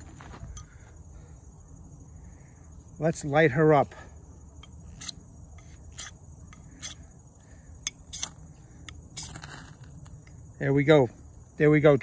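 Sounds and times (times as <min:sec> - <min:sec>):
high-pitched insect trill: 0:00.0 - 0:12.0
fire steel scraping: 0:07.8 - 0:10.5.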